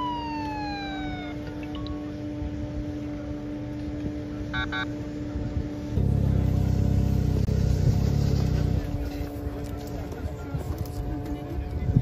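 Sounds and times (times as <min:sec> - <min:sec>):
snowmobile engines running: 0:00.0 - 0:12.0
snowmobile engine starting: 0:06.0 - 0:10.0.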